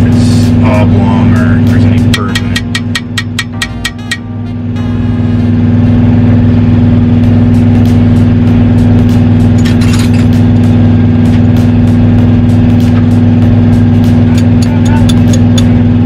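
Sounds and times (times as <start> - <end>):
diesel truck engine idling: 0.0 - 16.0.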